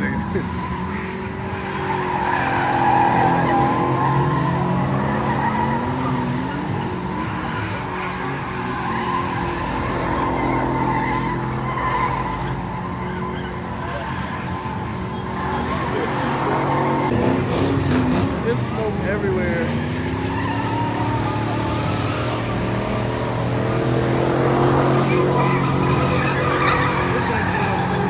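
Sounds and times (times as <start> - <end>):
car engine revving high: 0.0 - 28.0
tyres squealing on asphalt: 0.0 - 28.0.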